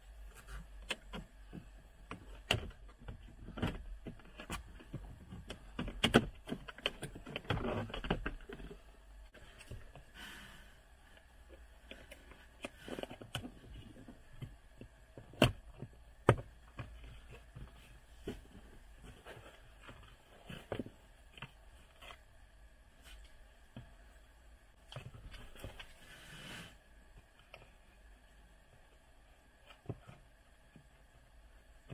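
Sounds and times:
plastic trim panels rubbing and knocking: 0.4s - 10.0s.

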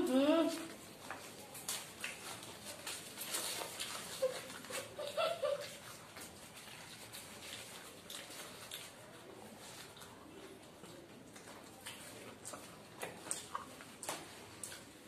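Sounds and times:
chewing: 0.0s - 15.0s
paper wrappers crinkling and tearing: 0.6s - 10.4s.

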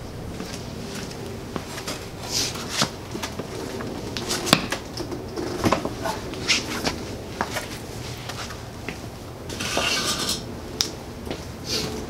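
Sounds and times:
shoe scuffs: 0.4s - 3.5s, 5.7s - 10.2s.

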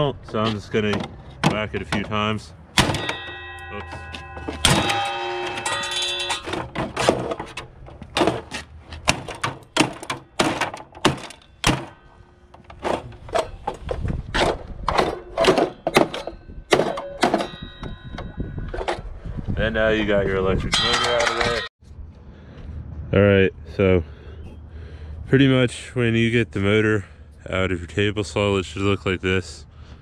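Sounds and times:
hatchet blows thunking: 0.2s - 18.9s.

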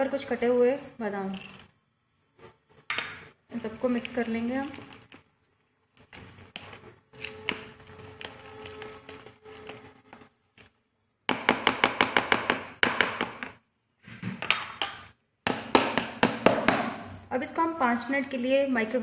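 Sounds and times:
spatula stirring batter in bowl: 3.7s - 13.6s.

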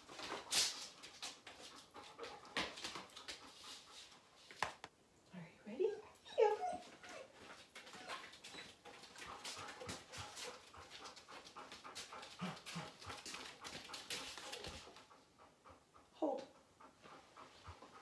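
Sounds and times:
dog panting: 0.0s - 4.5s, 6.0s - 18.0s
dog whining: 6.1s - 8.8s.

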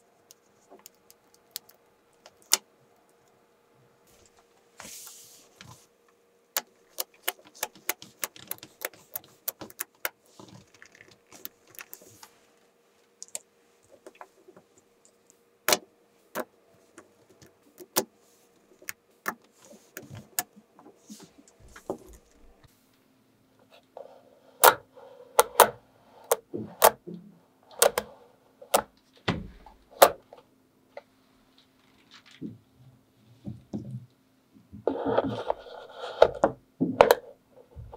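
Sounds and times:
magnetic balls clicking: 6.6s - 12.0s.

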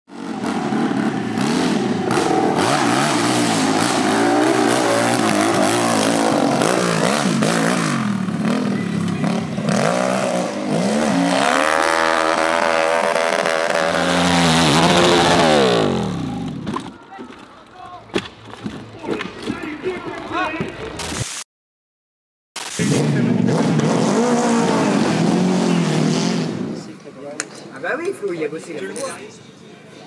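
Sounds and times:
dirt bike engines revving: 0.1s - 21.0s, 22.8s - 29.4s.

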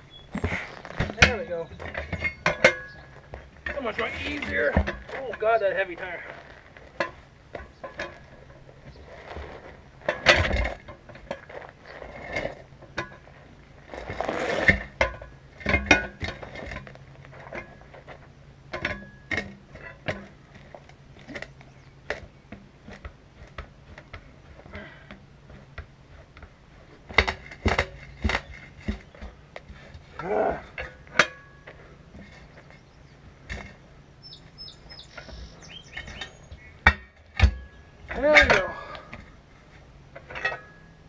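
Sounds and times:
metallic clanks from tire changer: 1.0s - 5.5s, 14.6s - 21.5s, 40.2s - 41.0s.

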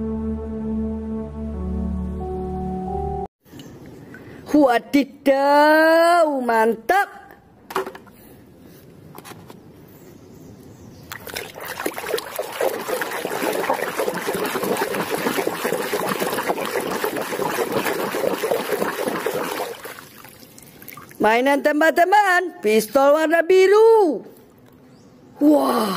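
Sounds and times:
hand splashing in muddy water: 11.1s - 21.2s.

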